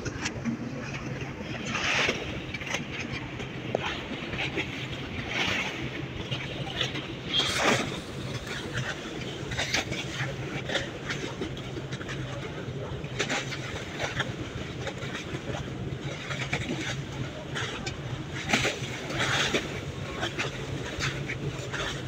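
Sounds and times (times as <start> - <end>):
rushing water noise: 0.0 - 22.0
ferry engines humming: 5.8 - 11.0.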